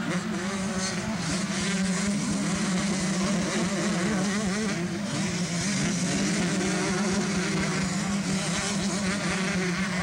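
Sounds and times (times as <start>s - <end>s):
motocross bikes revving: 0.0s - 10.0s.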